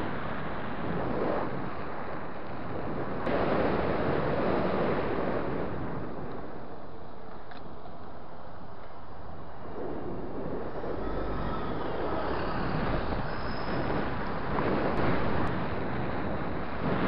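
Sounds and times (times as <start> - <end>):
wind noise on microphone: 0.0 - 17.0
passing traffic: 6.7 - 16.8.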